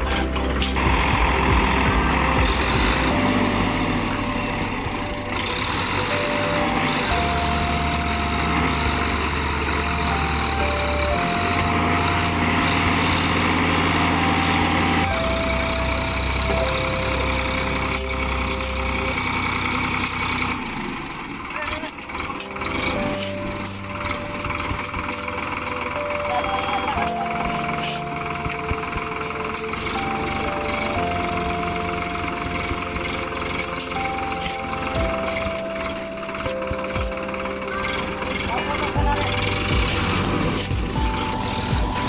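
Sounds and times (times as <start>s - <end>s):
background music: 0.0s - 42.0s
tractor diesel engine under load: 0.0s - 42.0s.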